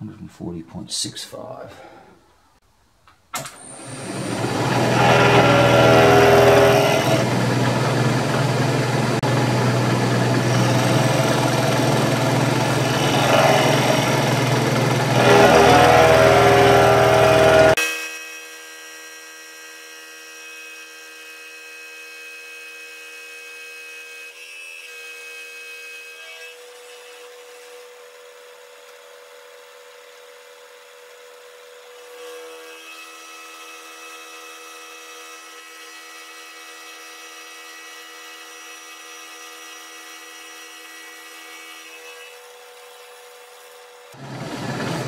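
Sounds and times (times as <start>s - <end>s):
milling machine cutting steel: 3.6s - 17.8s, 44.1s - 45.0s.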